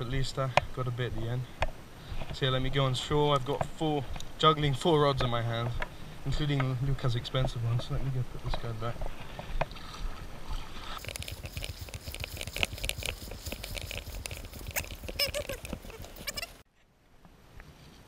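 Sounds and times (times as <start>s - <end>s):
short high-pitched calls: 14.6s - 16.6s.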